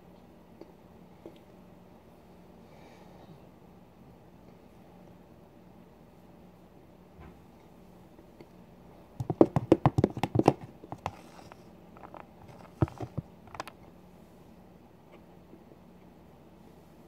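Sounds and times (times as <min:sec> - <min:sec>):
plastic tub clicks and knocks: 0:09.2 - 0:11.2.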